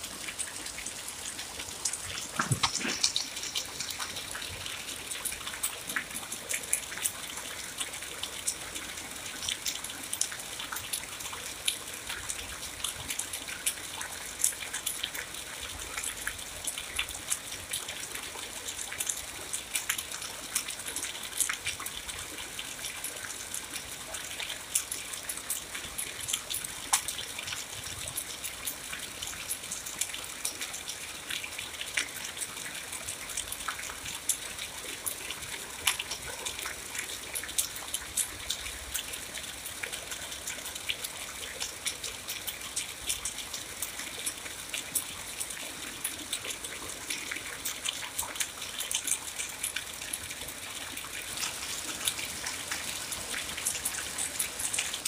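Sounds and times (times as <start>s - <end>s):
steady rain hiss: 0.0s - 55.0s
sharp raindrop taps: 1.6s - 4.5s.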